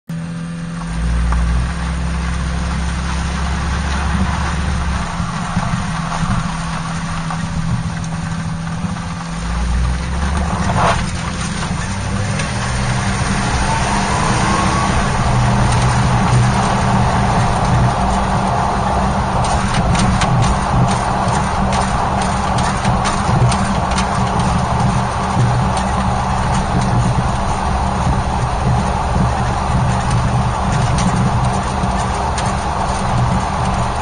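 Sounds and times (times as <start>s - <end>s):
car engine and exhaust running: 0.1s - 34.0s
road and tyre noise: 0.1s - 34.0s
faint rising tone: 11.9s - 17.6s.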